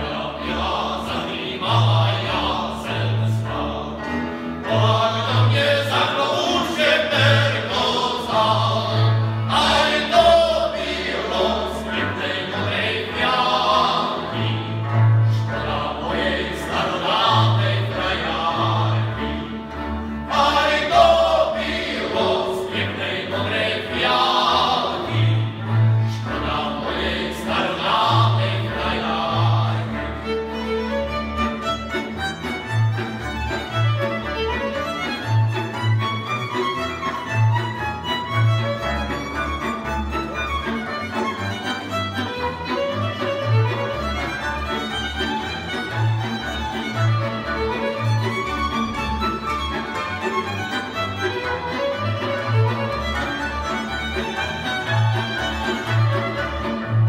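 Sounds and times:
men singing: 0.0 - 19.4, 20.3 - 30.1
fiddles: 29.2 - 57.0.

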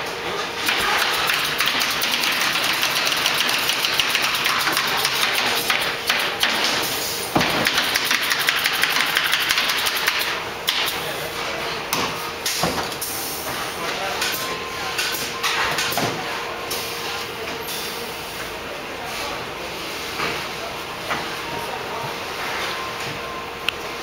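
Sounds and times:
machine clicking and tapping: 0.7 - 6.6, 7.4 - 10.9.

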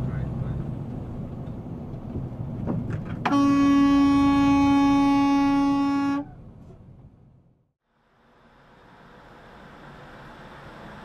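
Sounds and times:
road and engine noise: 0.0 - 11.0
vehicle horn blast: 3.2 - 6.4.

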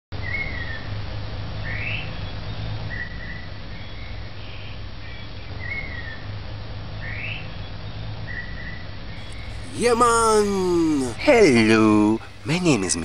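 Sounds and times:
low background hum: 9.2 - 13.0.

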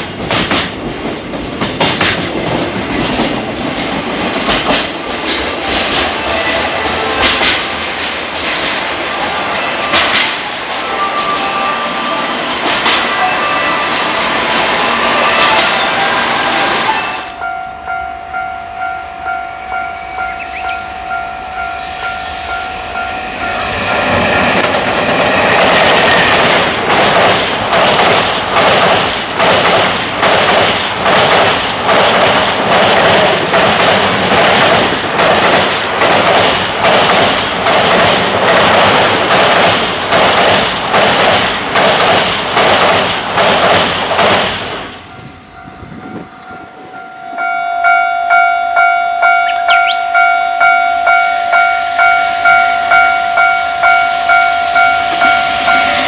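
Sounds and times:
train wheels clattering on bridge: 0.0 - 11.5, 24.0 - 45.0.

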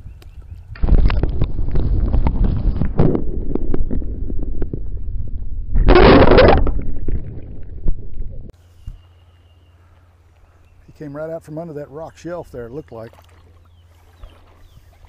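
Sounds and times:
muffled underwater rushing water: 0.8 - 8.5.

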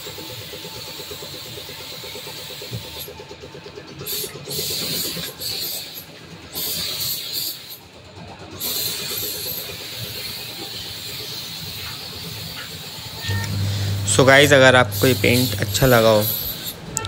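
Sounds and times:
spray gun hissing: 6.6 - 7.8, 8.6 - 16.9.

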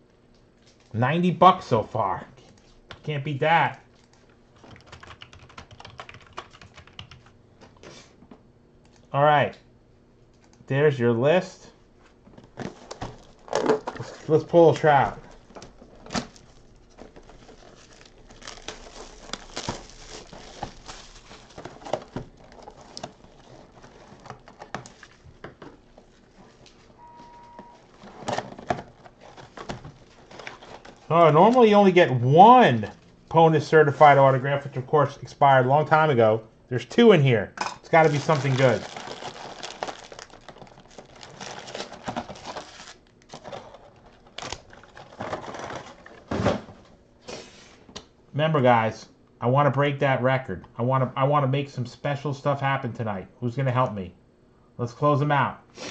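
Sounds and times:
plastic wrap tearing and crinkling: 12.6 - 25.3, 37.9 - 46.2.

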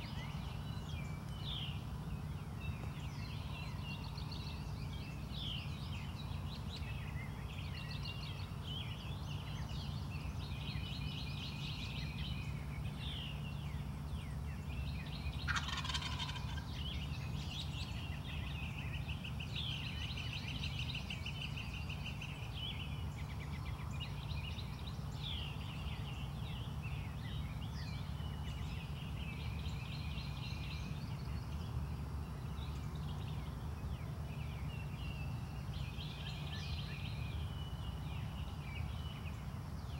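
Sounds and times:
songbirds chirping and trilling: 0.0 - 39.9
steady low hum: 0.0 - 39.9
turkey gobbling: 15.5 - 16.6.

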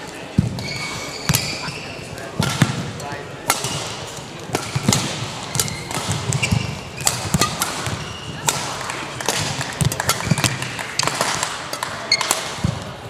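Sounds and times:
shoes squeaking on court: 0.0 - 2.7, 5.5 - 8.5, 11.8 - 12.5
rackets striking shuttlecock: 0.0 - 13.0.

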